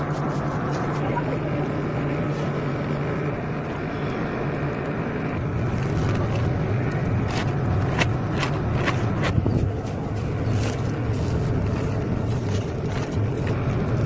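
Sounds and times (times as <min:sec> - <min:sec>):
low engine hum: 0:00.0 - 0:14.0
plastic sack crackling: 0:07.2 - 0:14.0.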